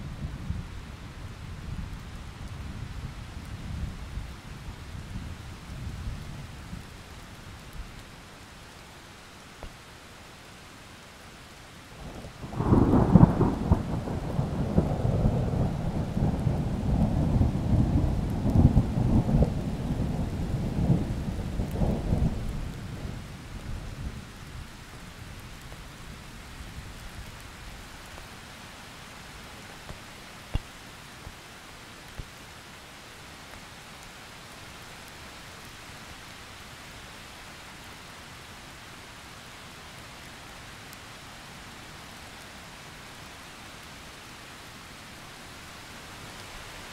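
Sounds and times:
steady rain: 0:00.0 - 0:46.9
thunder rumbling: 0:12.4 - 0:23.2.

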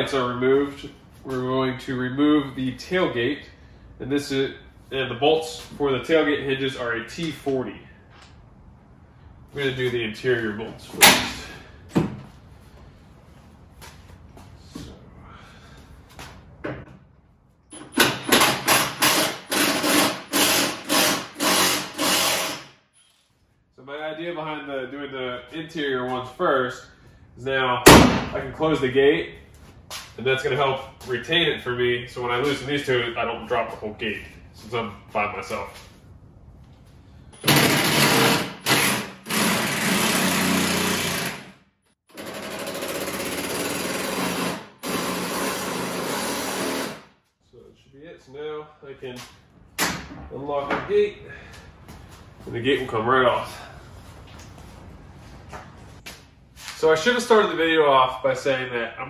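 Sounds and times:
impact driver hammering: 0:18.0 - 0:22.7, 0:37.4 - 0:41.5
hand ratchet strokes: 0:18.0 - 0:22.8.

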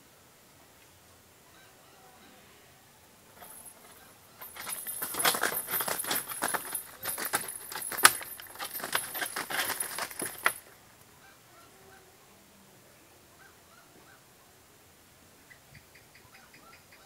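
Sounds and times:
wings and talons clattering on roof: 0:03.4 - 0:10.8.

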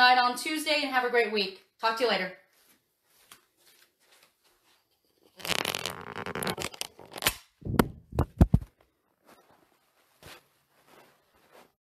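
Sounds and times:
handling rustling and scraping: 0:08.2 - 0:11.8.

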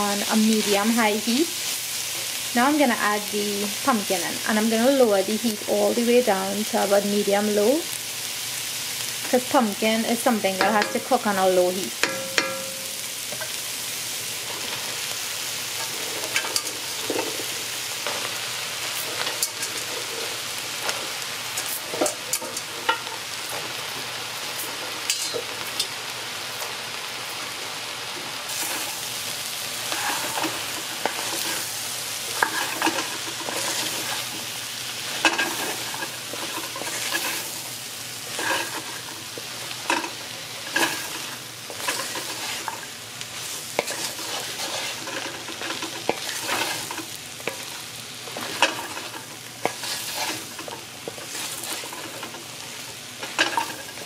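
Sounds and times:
fish and onions sizzling: 0:00.0 - 0:54.0
wooden spoon scraping a pot: 0:29.8 - 0:37.6, 0:38.3 - 0:52.6.

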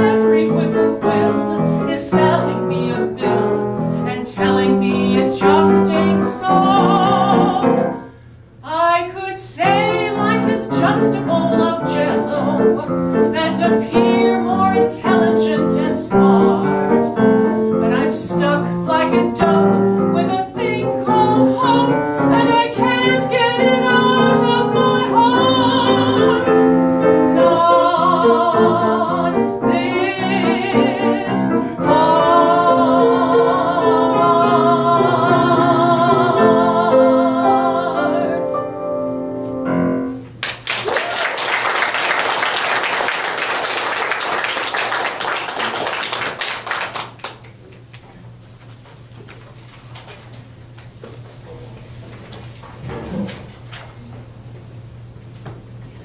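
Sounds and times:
woman singing: 0:00.0 - 0:08.0, 0:08.6 - 0:38.7
piano accompaniment: 0:00.0 - 0:08.2, 0:09.6 - 0:40.4
audience applause: 0:40.4 - 0:47.5.

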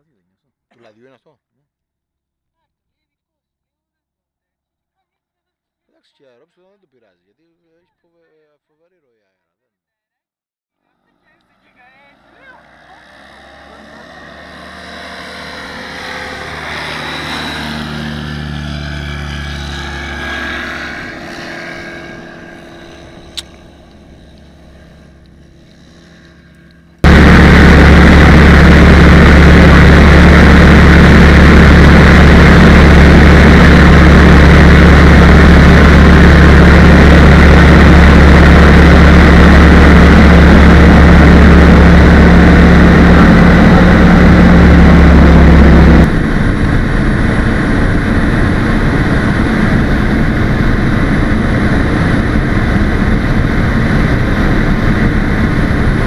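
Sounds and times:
propeller aircraft passing: 0:11.0 - 0:56.0
aircraft engine drone in cockpit: 0:11.4 - 0:56.0.

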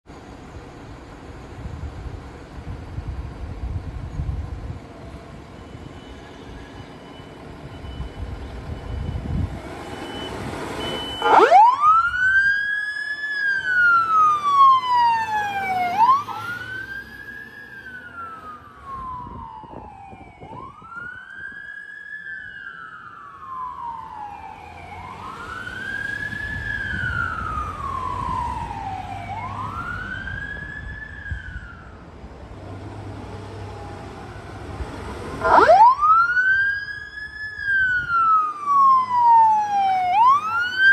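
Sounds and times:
fire truck engine rumbling: 0:00.1 - 0:06.3, 0:06.9 - 0:40.9
wailing siren: 0:05.1 - 0:32.2, 0:33.2 - 0:40.9.

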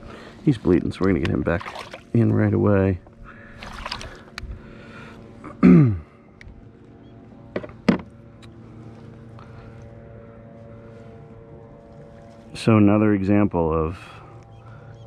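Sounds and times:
water splash: 0:01.5 - 0:02.1, 0:03.6 - 0:04.2.

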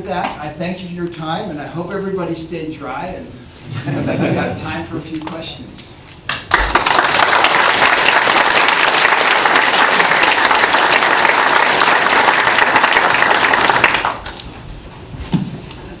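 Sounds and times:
audience applauding: 0:06.3 - 0:14.4.

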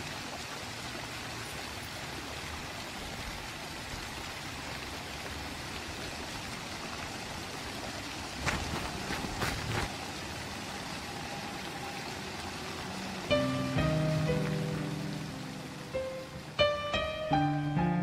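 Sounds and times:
background hiss: 0:13.1 - 0:18.0.

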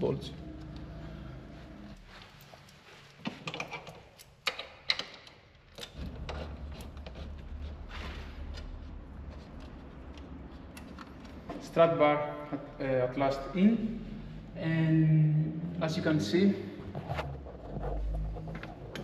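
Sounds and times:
small metal clicks and knocks: 0:03.3 - 0:07.2.

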